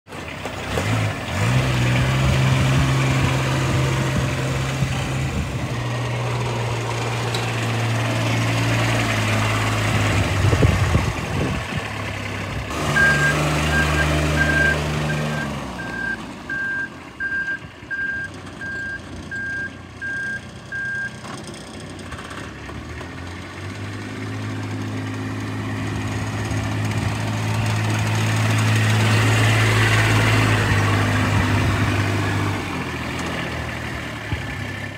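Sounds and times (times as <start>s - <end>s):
diesel engine running: 0.1s - 34.9s
reverse alarm beeping: 12.9s - 21.2s.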